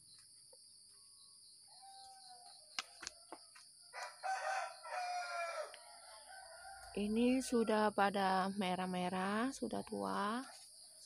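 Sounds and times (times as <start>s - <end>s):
crickets chirring: 0.0s - 11.0s
rooster crowing: 1.7s - 7.0s.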